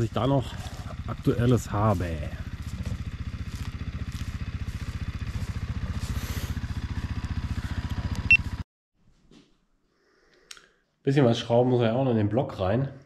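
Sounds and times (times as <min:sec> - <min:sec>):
motorcycle engine idling: 0:00.0 - 0:08.6.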